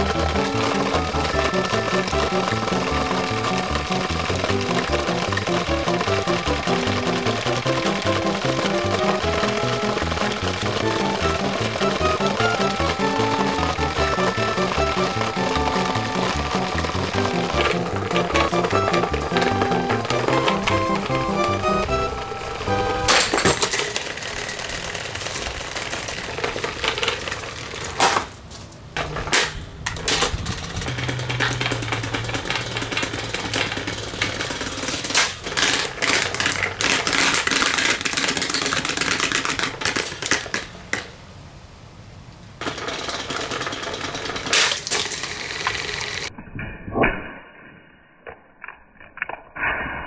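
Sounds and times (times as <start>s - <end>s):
muffled steady tones: 0.0s - 23.2s
table fan clattering and knocking: 0.0s - 27.2s, 29.0s - 41.0s, 42.6s - 46.2s.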